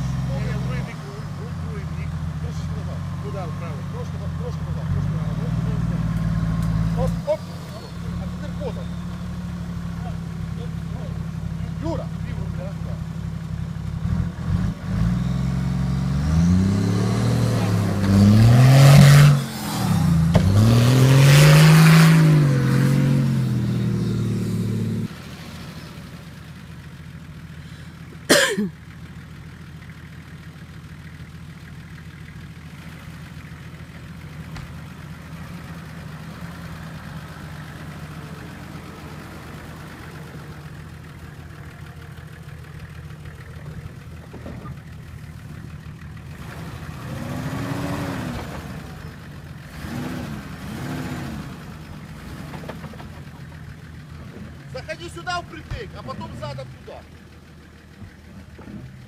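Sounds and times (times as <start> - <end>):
vehicle engine running steadily: 0.0 - 59.0
suv engine revving hard: 14.0 - 25.2, 46.3 - 52.6.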